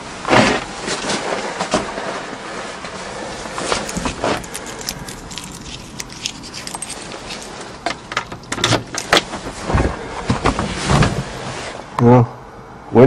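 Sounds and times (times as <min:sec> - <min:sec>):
clicks and rattles of handling: 0:03.6 - 0:09.3.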